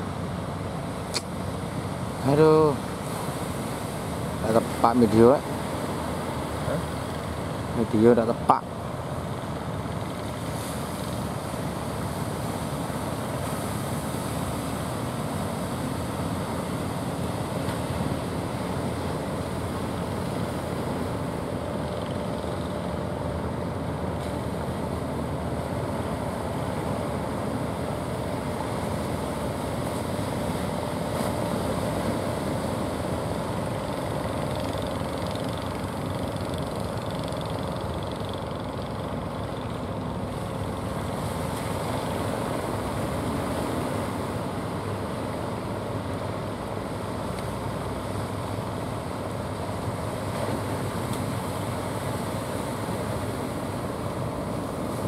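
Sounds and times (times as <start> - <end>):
boat engines humming: 0.0 - 55.0.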